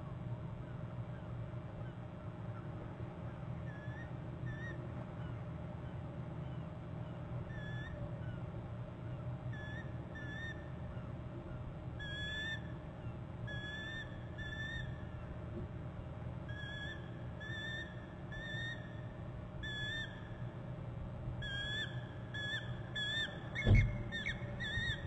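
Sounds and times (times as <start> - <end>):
bird whistled chirps: 21.4 - 25.0.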